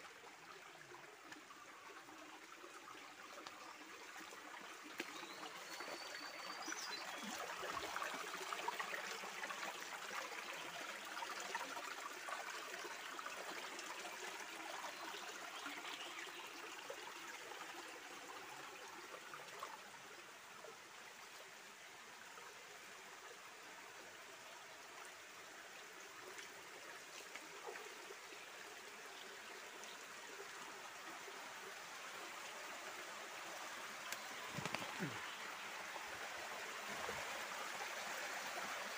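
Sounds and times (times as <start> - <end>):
stream running over rocks: 0.0 - 38.9.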